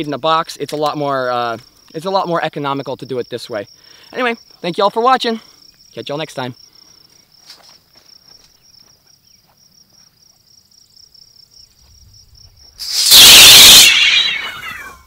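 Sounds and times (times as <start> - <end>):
insects chirping: 0.0 - 15.0
loud metallic crash: 12.8 - 15.0.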